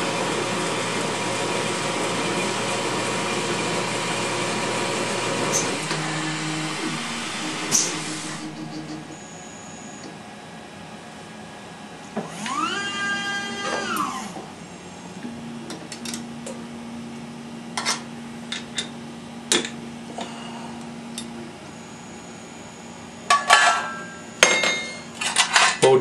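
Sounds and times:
steady low hum: 0.0s - 12.2s
lathe motor whining: 0.0s - 16.1s.

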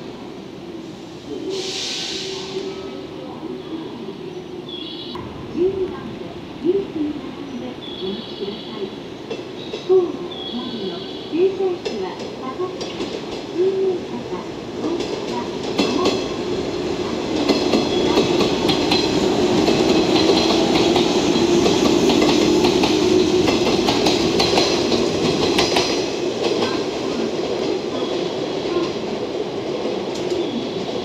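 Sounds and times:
train wheels clicking over rail joints: 17.3s - 26.9s.

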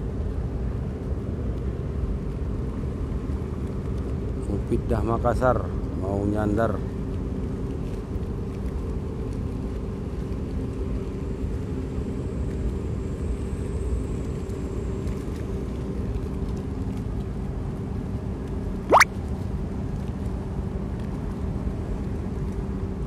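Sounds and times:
constant hum tones: 5.5s - 18.8s.

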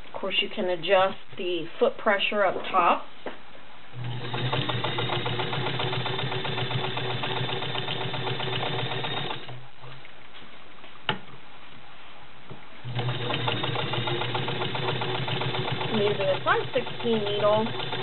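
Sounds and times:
sewing machine stitching: 4.0s - 9.6s, 12.8s - 18.0s.

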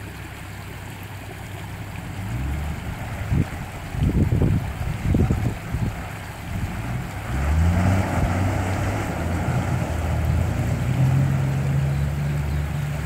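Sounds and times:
water splashing around vehicle: 0.0s - 13.0s
engine revving: 2.0s - 3.7s, 6.4s - 13.0s.

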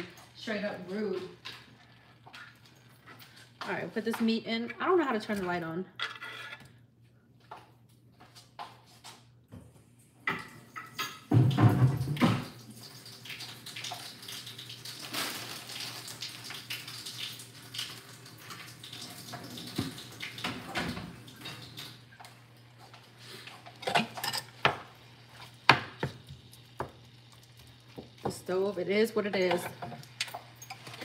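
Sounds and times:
dishes and pots clattering: 10.2s - 12.5s, 23.6s - 24.9s, 29.3s - 31.0s
tap running: 23.7s - 31.0s.

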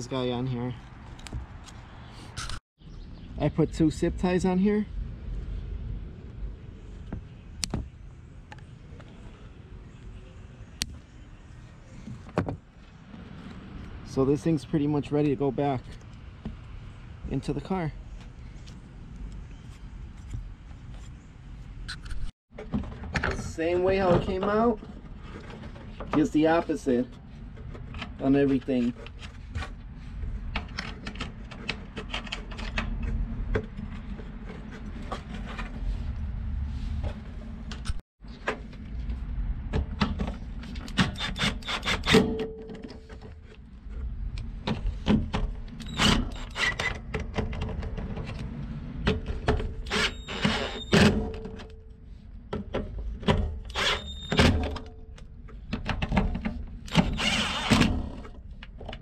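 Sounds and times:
steady low rumble: 3.3s - 11.6s.

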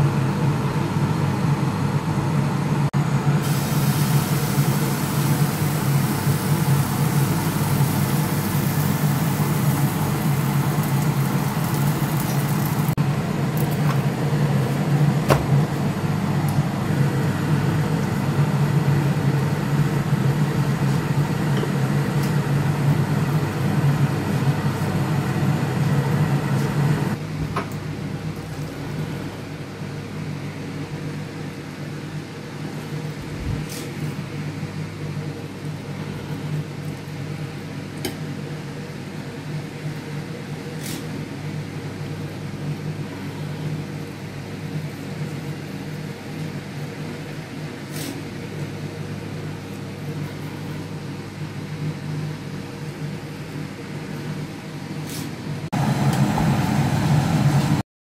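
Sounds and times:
low machine hum: 0.0s - 31.8s, 55.5s - 57.8s.

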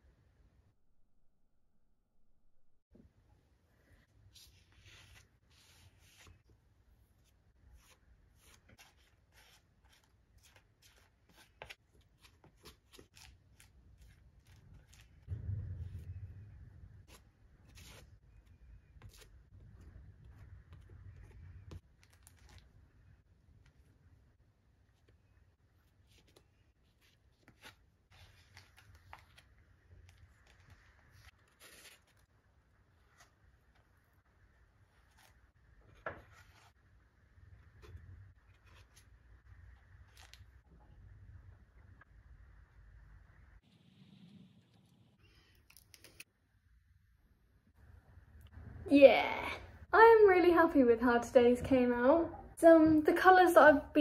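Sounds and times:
palette knife scraping paint on paper: 4.3s - 15.3s, 17.0s - 20.0s.

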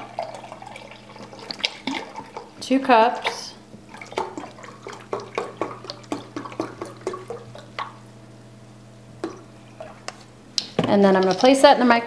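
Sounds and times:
liquid glugging from carton: 0.0s - 2.6s, 3.2s - 8.1s.

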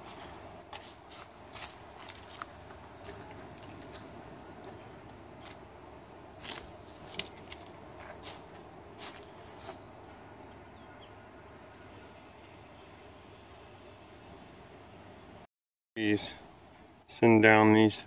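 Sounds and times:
footsteps crunching dry leaves: 0.0s - 5.6s, 6.4s - 9.9s.

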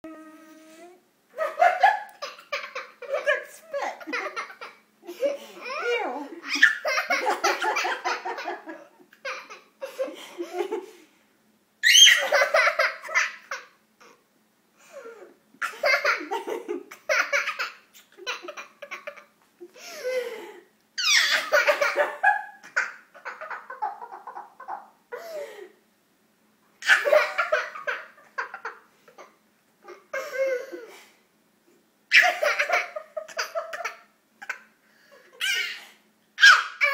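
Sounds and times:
toddler laughing: 1.4s - 10.6s, 21.0s - 25.3s, 32.1s - 34.7s, 35.4s - 36.9s
woman laughing: 3.0s - 9.0s.

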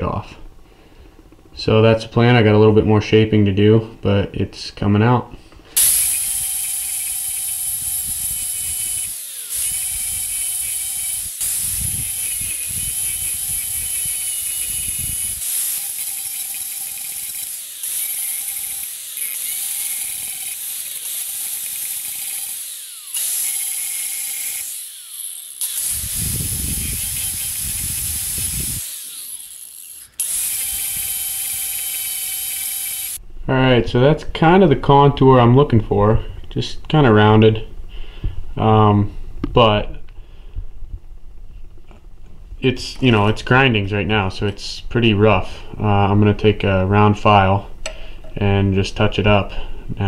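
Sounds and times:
angle grinder cutting steel: 5.8s - 33.2s.

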